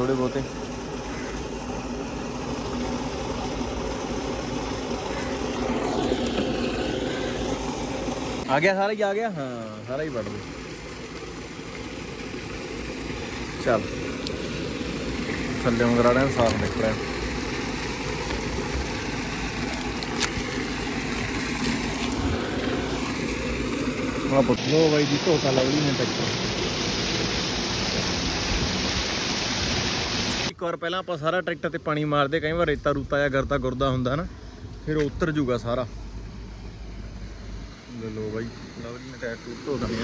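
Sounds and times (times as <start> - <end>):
water jet spraying: 0.0 - 30.5.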